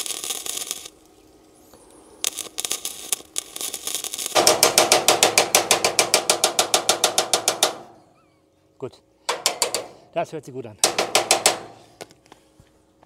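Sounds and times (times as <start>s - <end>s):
electric welding crackling and popping: 0.0s - 8.1s, 9.3s - 10.1s, 10.7s - 12.1s.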